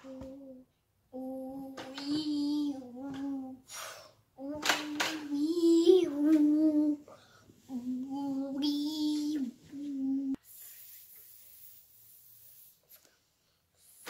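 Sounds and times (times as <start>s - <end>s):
child singing long notes: 0.0s - 3.7s, 4.4s - 7.1s, 7.7s - 10.4s.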